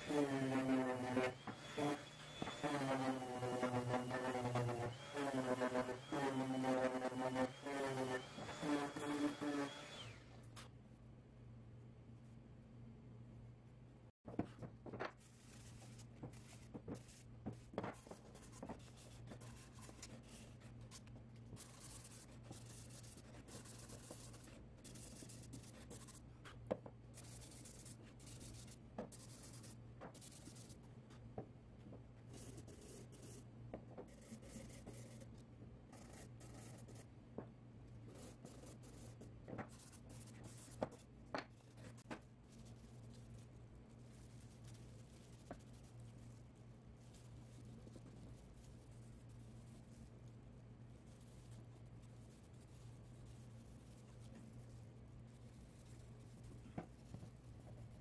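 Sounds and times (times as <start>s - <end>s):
sandpaper rasping on wood: 0.0s - 10.2s.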